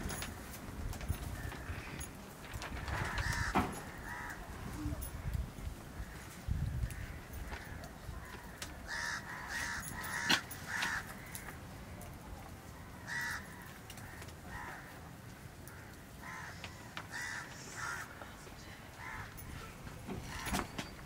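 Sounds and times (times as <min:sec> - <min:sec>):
bird calling: 0:08.1 - 0:11.6.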